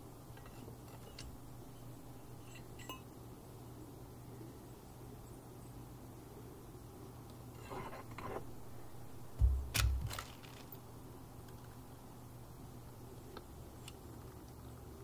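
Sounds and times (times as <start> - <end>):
dull thumps: 9.3 - 10.6
hands rustling: 9.4 - 10.8.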